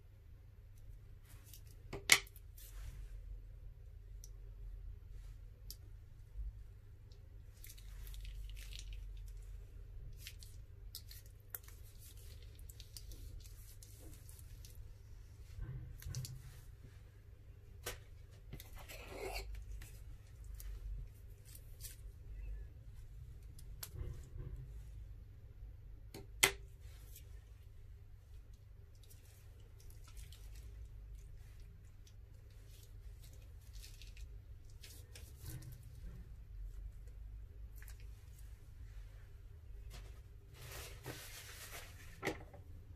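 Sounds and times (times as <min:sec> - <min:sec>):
low steady hum: 0:00.0 - 0:42.9
faint squishing: 0:00.2 - 0:42.9
plastic piping bag crinkling: 0:07.5 - 0:14.9, 0:28.9 - 0:35.8.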